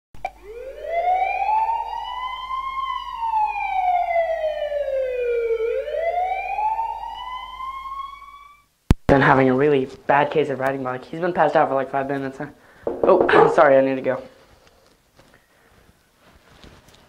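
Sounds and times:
emergency siren wailing: 0:00.3 - 0:08.7.

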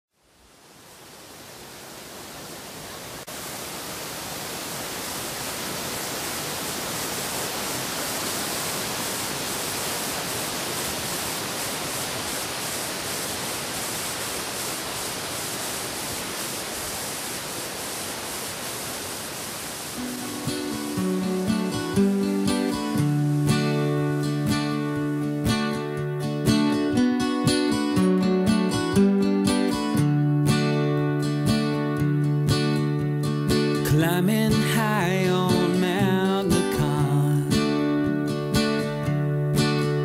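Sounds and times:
stream rushing over boulders: 0:00.1 - 0:28.0, 0:33.3 - 0:40.0
acoustic guitar: 0:20.0 - 0:40.0.

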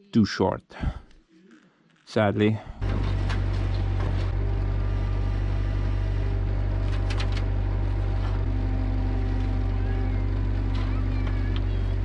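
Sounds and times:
excavator engine running: 0:02.8 - 0:12.0.

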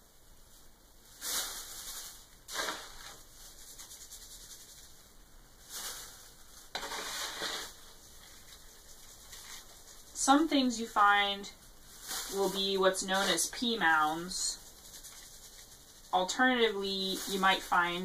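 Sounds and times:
scoop sifting cat litter: 0:01.0 - 0:05.0, 0:05.6 - 0:18.0.

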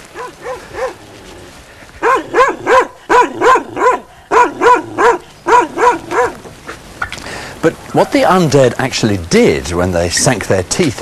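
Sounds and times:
dog barking: 0:00.1 - 0:01.0, 0:02.0 - 0:06.4.

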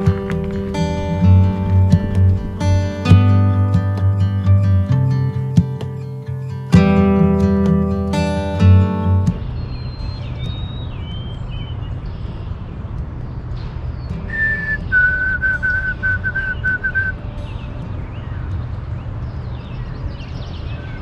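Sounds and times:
steady low rumble: 0:00.0 - 0:05.8
high bird chirps: 0:09.1 - 0:21.0
sparrow whistled song: 0:09.3 - 0:12.6, 0:13.2 - 0:21.0.

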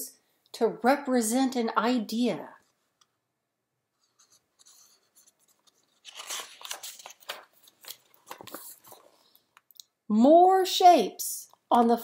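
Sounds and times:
book pages turning: 0:03.9 - 0:09.7.

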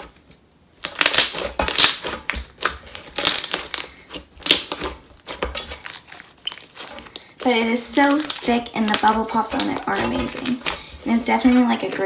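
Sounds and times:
slime squishing and popping: 0:00.8 - 0:07.4, 0:08.0 - 0:10.8.

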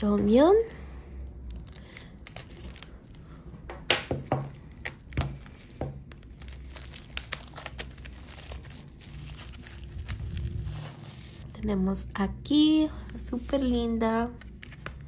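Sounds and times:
plastic shrink wrap crinkling: 0:01.4 - 0:03.5, 0:04.5 - 0:11.4.

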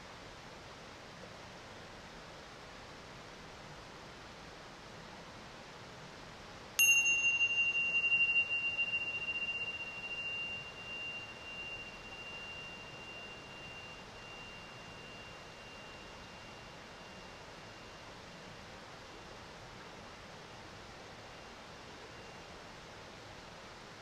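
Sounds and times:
small bell ringing: 0:06.8 - 0:17.4.

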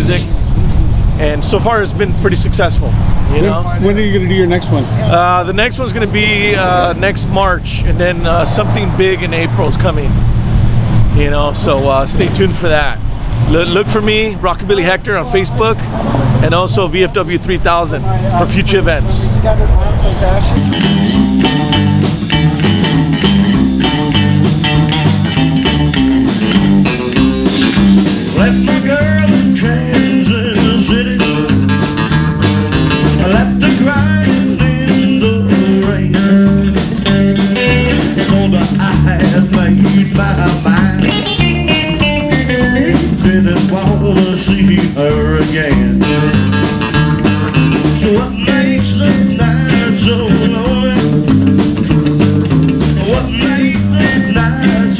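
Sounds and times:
rockabilly band music: 0:00.0 - 0:54.9.

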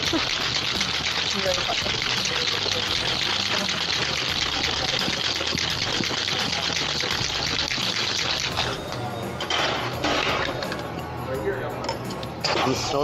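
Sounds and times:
ice rattling in cocktail shaker: 0:00.0 - 0:09.0.

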